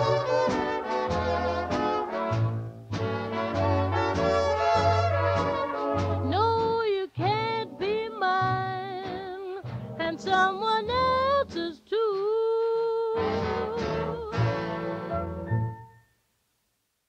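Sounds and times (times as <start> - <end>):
band playing: 0.0 - 11.7, 13.2 - 15.5
woman singing pop ballad: 6.2 - 14.6.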